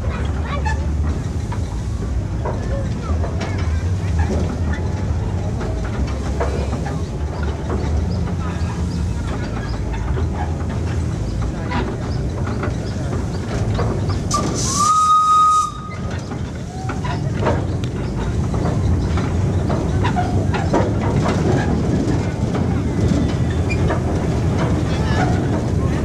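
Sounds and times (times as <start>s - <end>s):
train wheels clattering on rails: 0.0s - 26.0s
steam whistle blast: 14.3s - 16.0s.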